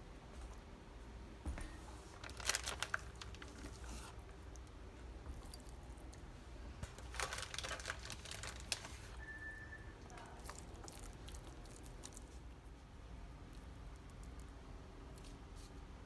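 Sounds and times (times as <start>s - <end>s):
plastic zip bag crinkling: 2.1s - 4.3s, 6.8s - 9.2s
short high beep: 9.2s - 10.0s.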